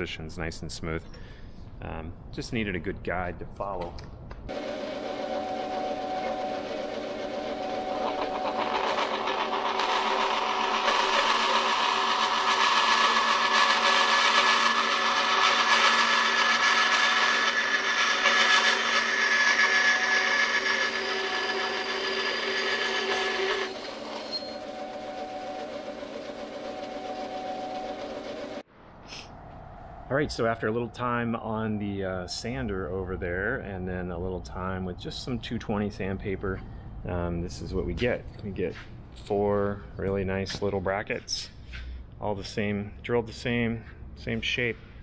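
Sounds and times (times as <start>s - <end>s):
band saw motor hum: 4.5s - 28.6s
saw blade rasping through metal: 5.5s - 28.6s.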